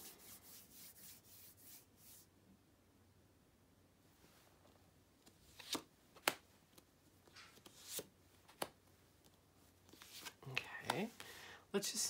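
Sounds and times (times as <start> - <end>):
cards sliding: 5.2 - 6.4, 7.2 - 8.7, 9.8 - 11.3.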